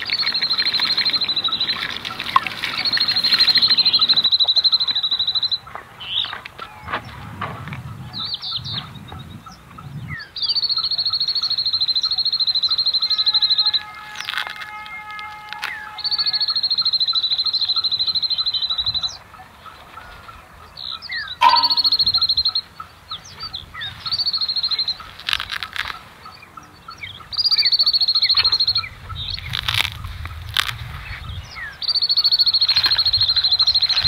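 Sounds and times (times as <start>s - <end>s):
bird high rapid trill: 0.0s - 5.7s, 21.0s - 25.2s
short bird chirps: 21.2s - 22.6s.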